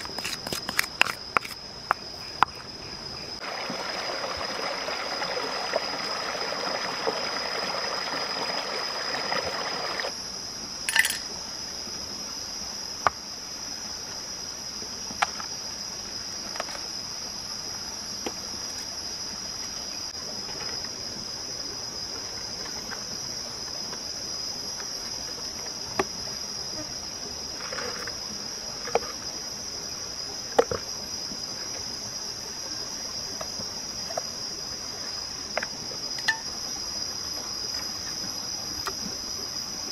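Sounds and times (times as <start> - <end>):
stream rushing: 3.4 - 10.1.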